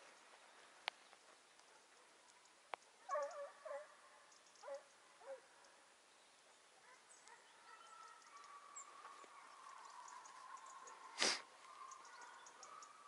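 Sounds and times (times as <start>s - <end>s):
distant hounds baying: 3.0s - 5.8s, 6.8s - 13.0s.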